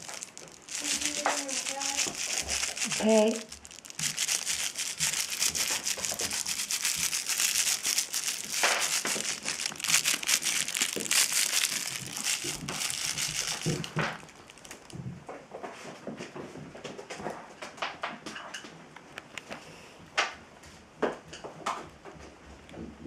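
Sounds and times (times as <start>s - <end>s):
plastic streamers rustling: 0.0s - 15.1s.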